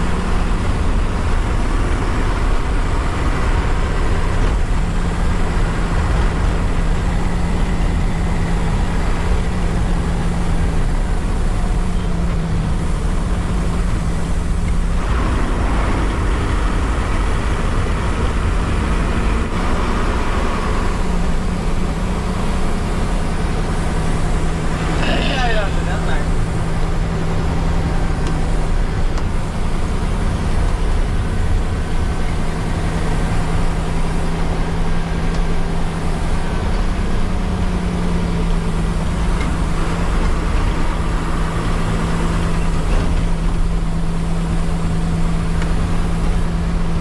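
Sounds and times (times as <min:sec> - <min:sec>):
bus diesel engine running: 0:00.0 - 0:47.0
road and tyre noise: 0:00.0 - 0:47.0.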